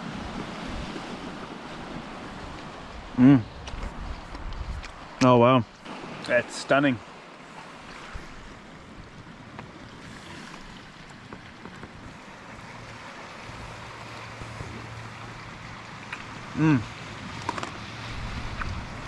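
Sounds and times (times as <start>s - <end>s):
sea waves on pebble beach: 0.0s - 4.3s, 4.9s - 19.0s
wind: 0.0s - 19.0s
man humming: 3.2s - 3.5s, 16.5s - 17.0s.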